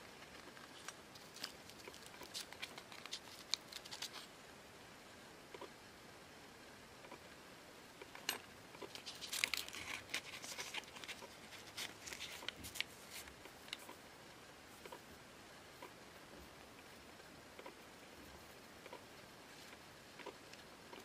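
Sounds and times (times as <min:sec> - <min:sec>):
paper rustling: 0:00.2 - 0:04.3, 0:08.9 - 0:14.0.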